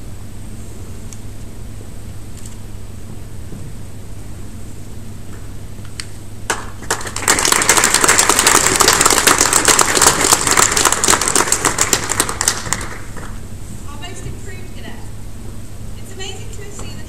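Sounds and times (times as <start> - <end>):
audience applauding: 6.5 - 13.3.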